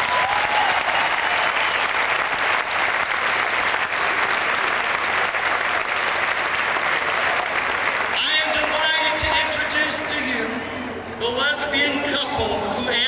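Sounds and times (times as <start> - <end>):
large crowd applauding: 0.0 - 9.4.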